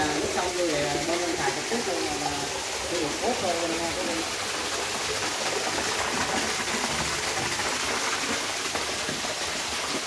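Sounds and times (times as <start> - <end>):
water pouring into a tank: 0.0 - 10.0.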